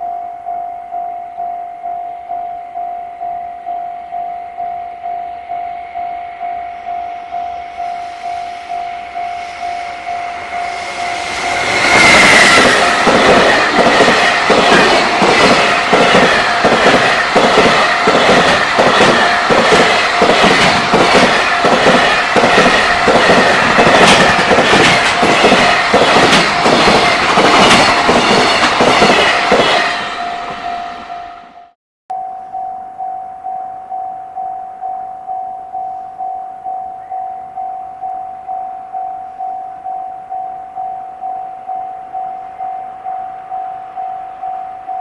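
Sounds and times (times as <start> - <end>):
level-crossing bell ringing: 0.0 - 26.8, 30.0 - 45.0
freight train passing: 4.5 - 31.8.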